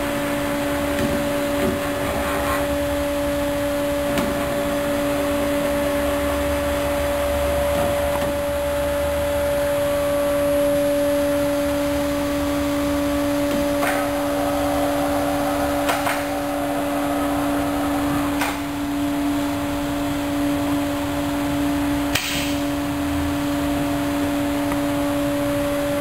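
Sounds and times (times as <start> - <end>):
pump humming: 0.0 - 26.0
air hissing from valves: 10.8 - 20.2.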